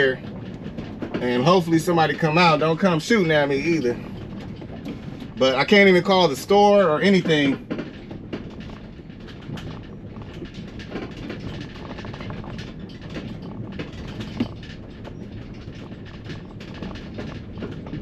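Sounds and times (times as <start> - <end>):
small clicks and rattles: 0.0 - 18.0
van interior engine rumble: 0.0 - 18.0.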